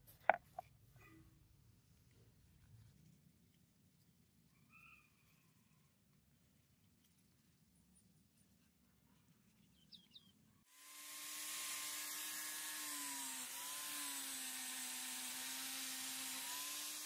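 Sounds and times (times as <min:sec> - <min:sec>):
angle grinder whining: 0:10.7 - 0:17.0.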